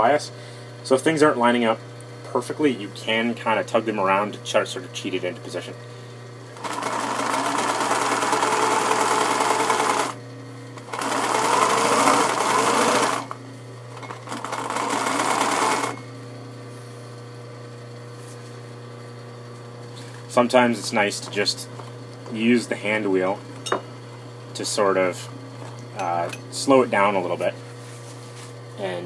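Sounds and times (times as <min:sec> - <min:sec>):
electric sewing machine stitching: 0:06.6 - 0:10.2, 0:10.8 - 0:16.0.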